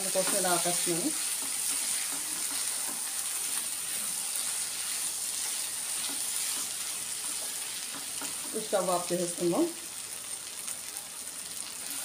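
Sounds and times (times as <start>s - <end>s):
wooden spatula scraping pan: 0.0s - 8.6s
food sizzling in a pan: 0.0s - 12.0s.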